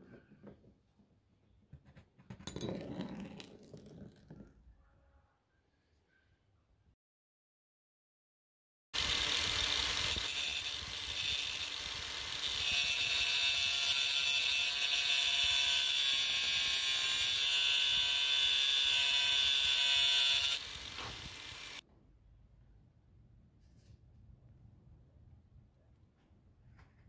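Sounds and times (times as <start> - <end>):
angle grinder grinding metal: 9.0 - 21.8.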